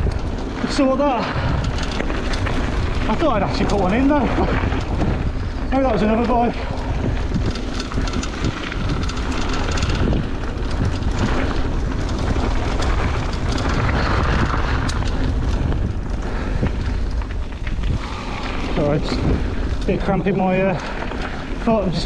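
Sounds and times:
bike clicks and clatters: 0.0s - 22.0s
bike tyre noise on dirt: 0.0s - 22.0s
wind rumble on microphone: 0.0s - 22.0s
man talking: 5.7s - 6.7s, 18.8s - 19.2s, 19.8s - 20.9s, 21.6s - 22.0s.

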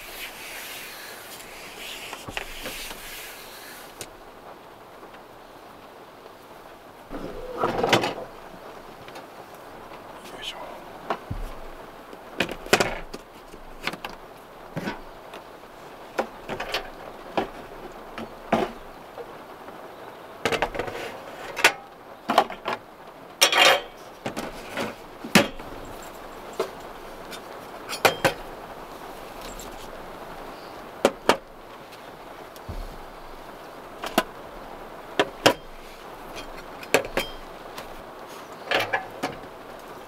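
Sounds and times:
soft steady hiss: 0.0s - 40.0s.

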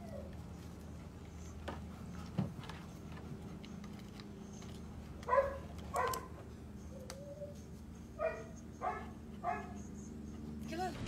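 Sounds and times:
dog whining: 0.0s - 0.6s, 4.4s - 10.4s
dog yipping: 5.3s - 10.0s.

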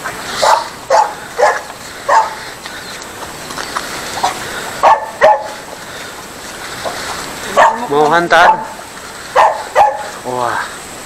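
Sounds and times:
dog barking: 0.4s - 2.4s, 4.8s - 5.6s, 7.5s - 10.2s.

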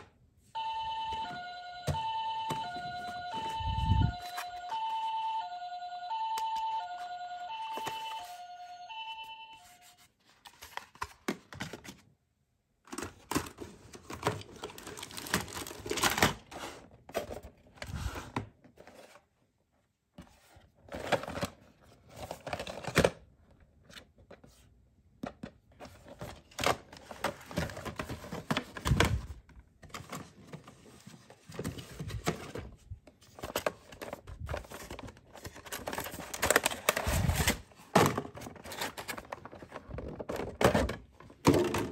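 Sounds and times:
toy siren two-tone: 0.6s - 9.9s
packaging rustling and crinkling: 12.9s - 19.2s, 25.8s - 41.9s.

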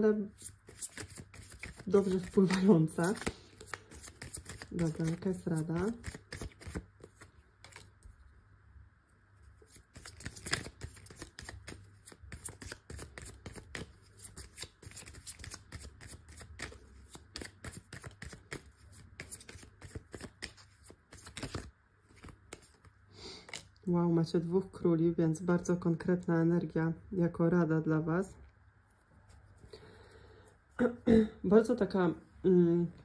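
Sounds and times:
cards being shuffled: 0.3s - 8.0s, 9.5s - 23.8s.

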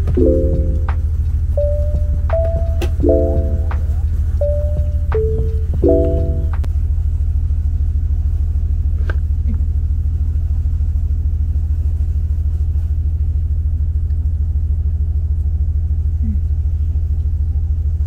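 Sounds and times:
train rumbling: 0.0s - 6.7s.

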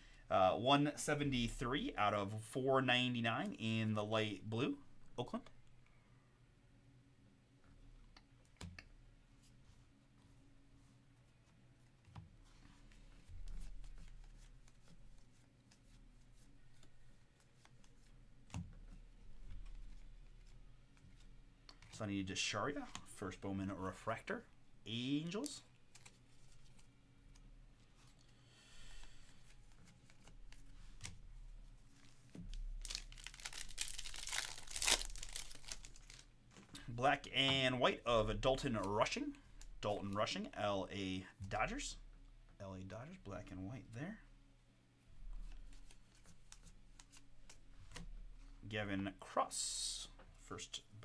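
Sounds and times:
trading cards rustling and clicking: 25.2s - 27.4s, 32.0s - 36.8s
wrapper tearing and crinkling: 32.7s - 36.3s.

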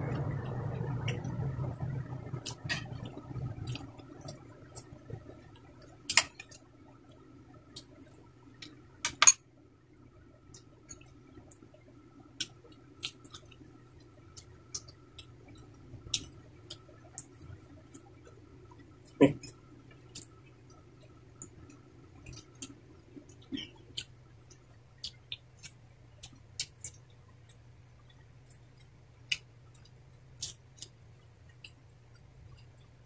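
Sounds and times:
low steady hum: 0.0s - 33.0s
faint chewing: 10.5s - 33.0s.

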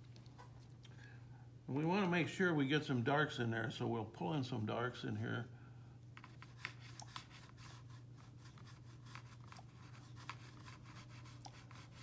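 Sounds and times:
steady low hum: 0.0s - 12.0s
paintbrush scratching on paper: 6.2s - 12.0s.

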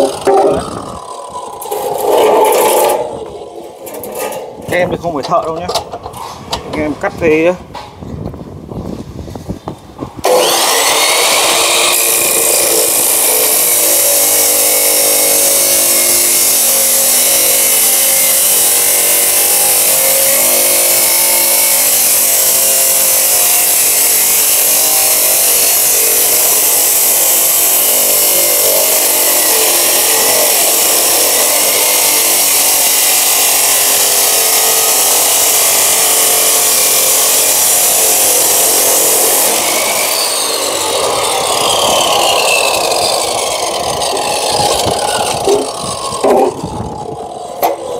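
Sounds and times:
chop saw motor starting up: 0.0s - 4.6s, 10.2s - 47.9s
disc grinding through steel tube: 0.0s - 5.3s, 10.2s - 47.9s.

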